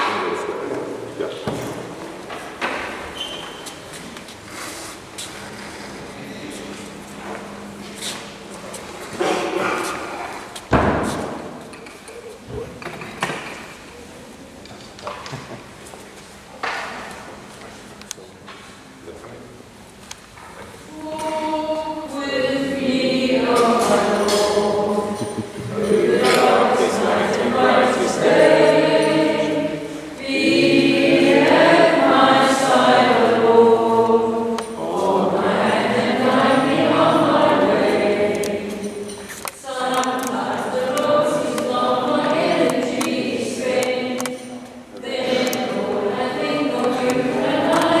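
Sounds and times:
choir singing gospel song: 0:20.9 - 0:48.0.

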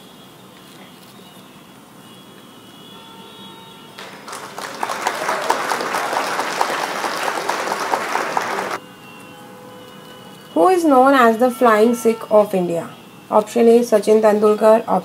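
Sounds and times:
applause: 0:04.0 - 0:08.8.

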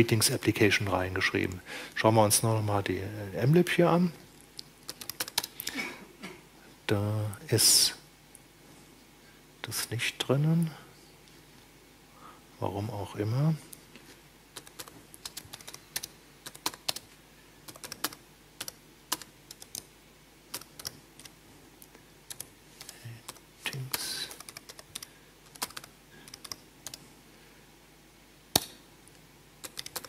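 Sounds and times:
computer keyboard typing: 0:04.8 - 0:05.6, 0:14.6 - 0:17.1, 0:17.7 - 0:19.9, 0:20.5 - 0:21.4, 0:22.3 - 0:27.0, 0:29.6 - 0:30.0.

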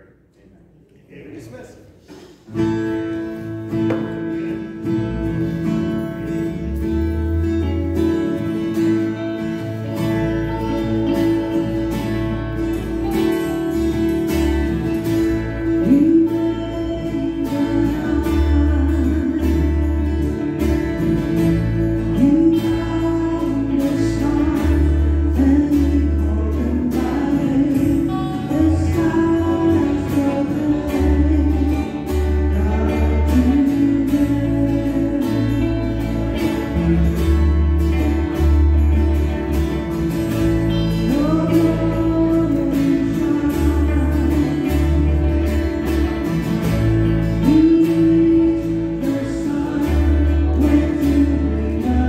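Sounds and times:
guitars: 0:01.3 - 0:52.0
low bass notes: 0:02.6 - 0:52.0
piano: 0:02.6 - 0:52.0.

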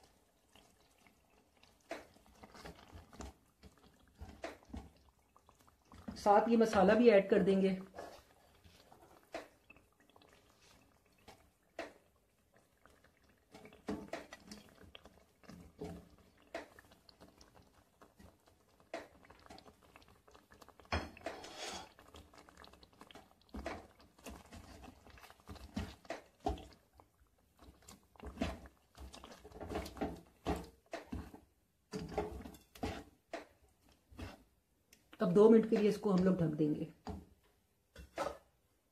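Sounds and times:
spatula tapping and scraping pot: 0:00.0 - 0:07.2, 0:07.8 - 0:38.5.

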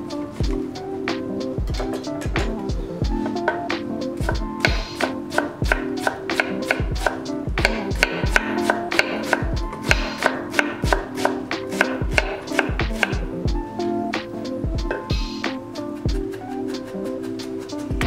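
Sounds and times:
background music: 0:00.0 - 0:18.0
knife chopping on wooden board: 0:03.4 - 0:13.2.

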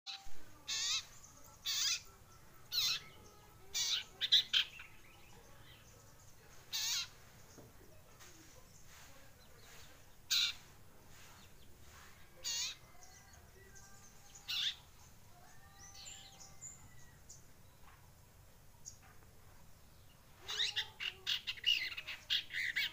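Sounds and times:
bird harsh chirps: 0:00.1 - 0:02.1, 0:02.7 - 0:05.9, 0:06.5 - 0:07.4, 0:08.8 - 0:14.9, 0:20.3 - 0:22.9.

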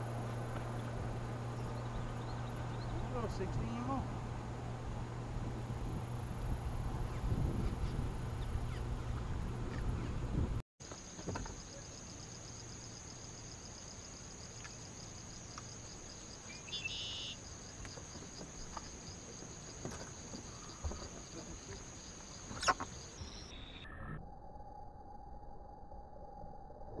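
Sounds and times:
trilling insect chorus: 0:00.0 - 0:04.5, 0:10.8 - 0:26.8.

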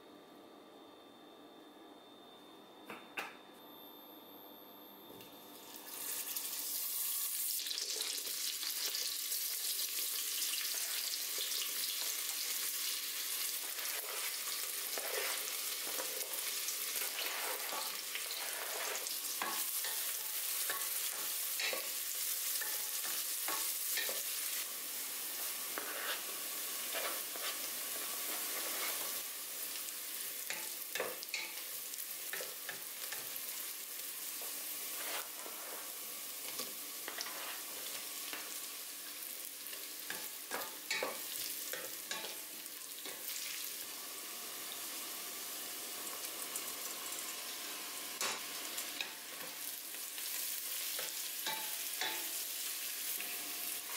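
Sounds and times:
vegetables sizzling in butter: 0:05.6 - 0:53.9
wooden spatula scraping pot: 0:14.9 - 0:16.0, 0:25.7 - 0:26.3, 0:26.9 - 0:27.7.

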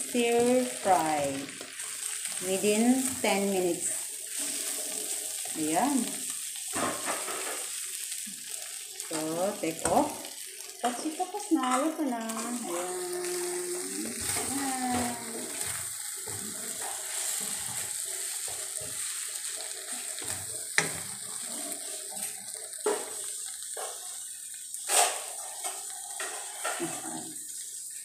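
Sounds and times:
stir fry sizzling in a wok: 0:00.0 - 0:28.0
wooden spatula scraping pan: 0:14.0 - 0:23.2, 0:24.8 - 0:27.2.

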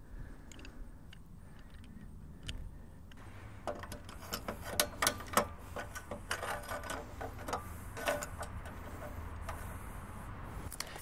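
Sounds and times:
metallic clicks and clinks: 0:03.6 - 0:09.6.

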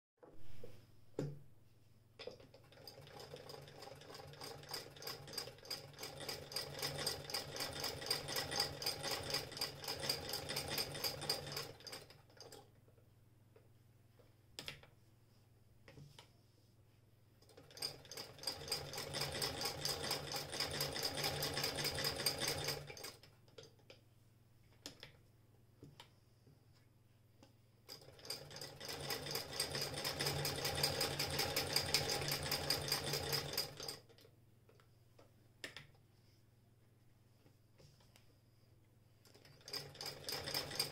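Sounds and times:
sewing machine clatter: 0:02.2 - 0:12.7, 0:17.4 - 0:23.7, 0:27.9 - 0:34.3, 0:39.2 - 0:40.9.

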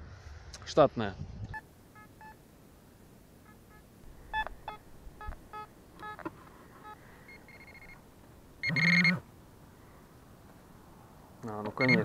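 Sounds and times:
pinpointer steady tone: 0:03.3 - 0:09.3, 0:11.4 - 0:12.0
metal detector beeps: 0:03.4 - 0:08.0, 0:08.6 - 0:09.1, 0:11.6 - 0:12.0
pinpointer buzzing tone: 0:03.4 - 0:08.0, 0:08.6 - 0:09.3.

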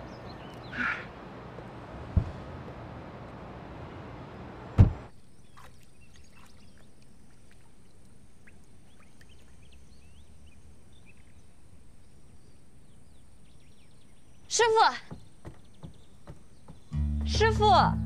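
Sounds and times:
birds chirping faintly: 0:00.0 - 0:02.1, 0:03.0 - 0:17.8
car door slamming: 0:02.0 - 0:02.8, 0:04.7 - 0:05.1.

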